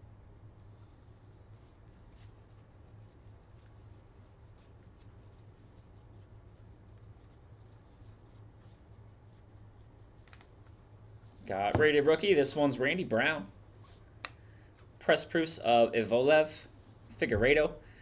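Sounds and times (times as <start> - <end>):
low steady hum: 0.0 - 18.0
cards clicking and rustling: 10.2 - 10.7.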